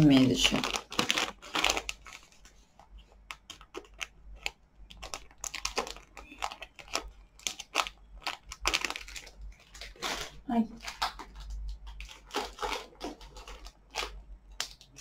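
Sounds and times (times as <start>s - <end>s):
plastic mailer crinkling: 0.0s - 15.0s.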